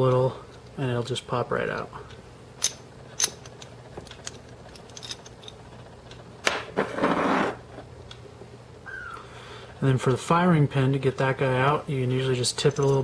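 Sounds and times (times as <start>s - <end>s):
small metal clicks of pistol parts: 2.6s - 5.6s
short scraping rustle: 6.8s - 7.6s.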